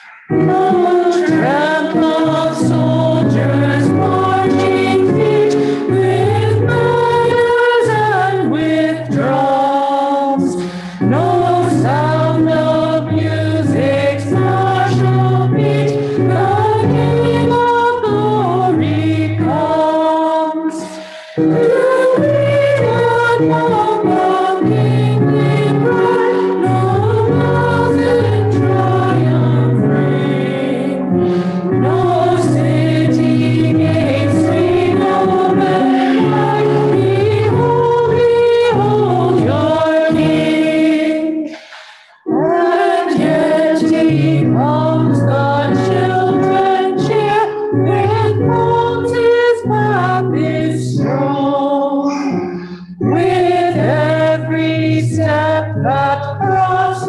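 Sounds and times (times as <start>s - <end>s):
sustained instrumental accompaniment: 0.0s - 9.5s, 21.0s - 50.5s
voices singing a hymn: 0.0s - 57.0s.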